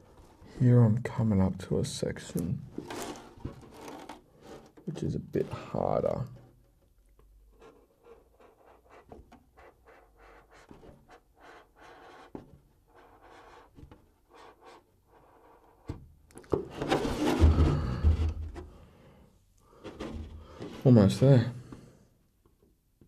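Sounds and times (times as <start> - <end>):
plastic shell crackling rustle: 2.7 - 5.1
scoring tool scratching plastic: 2.7 - 6.6, 7.5 - 16.0.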